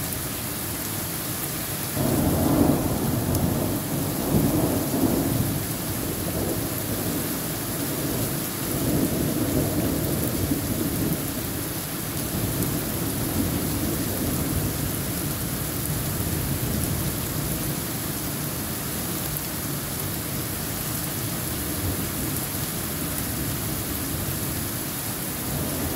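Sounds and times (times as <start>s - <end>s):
heavy rain on foliage: 0.0s - 25.9s
low thunder rumble: 2.0s - 11.3s.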